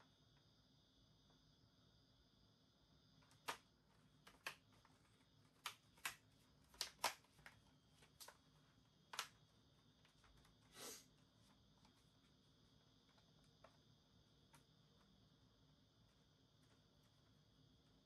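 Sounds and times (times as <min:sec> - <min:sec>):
short scrape: 0:10.7 - 0:11.1.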